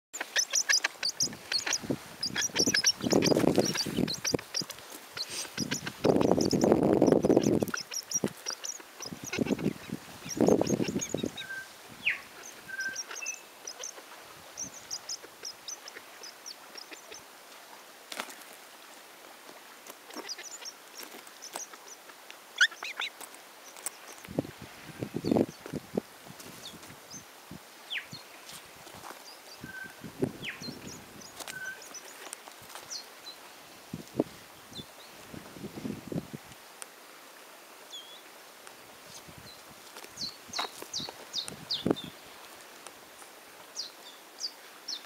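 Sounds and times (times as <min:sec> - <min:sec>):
bird chirps: 0:00.2 - 0:14.0, 0:29.4 - 0:32.2.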